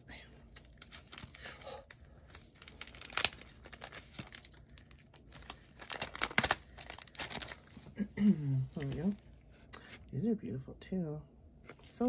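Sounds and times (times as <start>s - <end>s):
plastic packaging crinkling: 0.5s - 8.0s.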